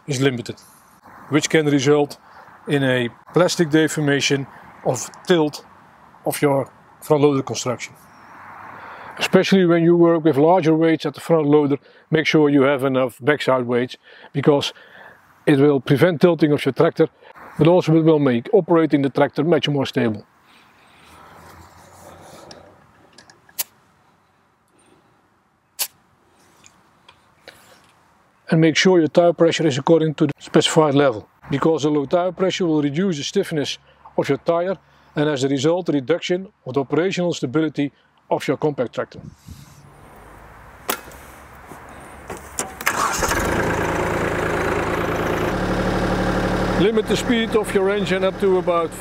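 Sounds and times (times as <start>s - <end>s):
tractor diesel engine running: 42.6s - 49.0s.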